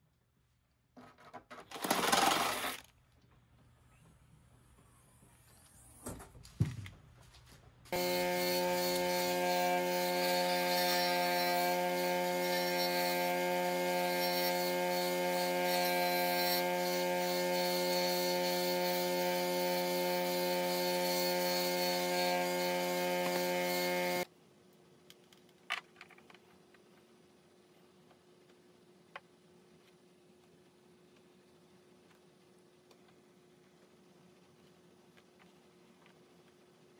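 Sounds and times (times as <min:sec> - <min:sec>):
bench grinder grinding: 0:07.9 - 0:24.3.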